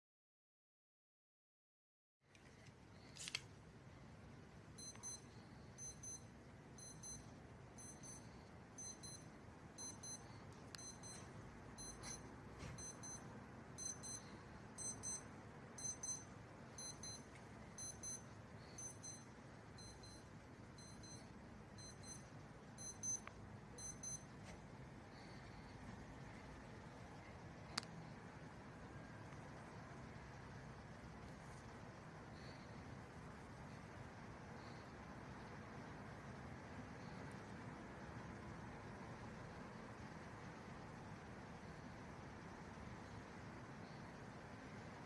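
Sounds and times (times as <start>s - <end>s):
electronic alarm beeping: 4.8s - 24.4s.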